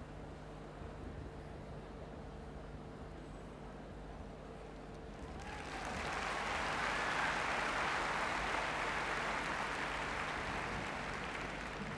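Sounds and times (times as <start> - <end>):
crowd applauding: 5.2 - 11.9.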